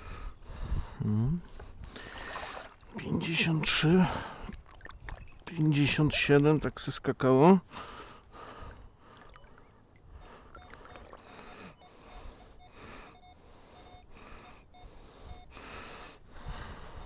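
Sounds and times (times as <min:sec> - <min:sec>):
water swishing: 0:02.0 - 0:03.1, 0:04.3 - 0:06.4, 0:09.0 - 0:11.8
metal detector beeps: 0:10.6 - 0:16.1.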